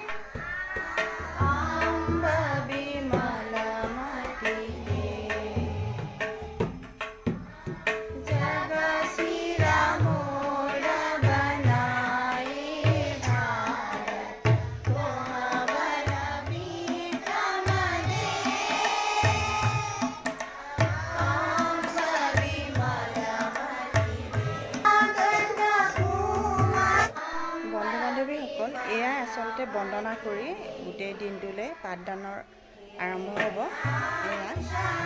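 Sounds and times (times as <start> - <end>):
deep tabla strokes: 0.0 - 27.1
group singing in unison: 0.0 - 35.0.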